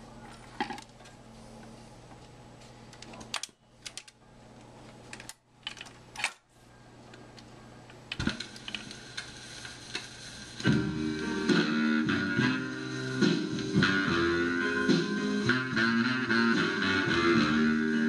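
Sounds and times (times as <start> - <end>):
record groove crackle: 7.1 - 18.0
record changer clicks and clunks: 8.0 - 10.9
music playing: 8.6 - 18.0.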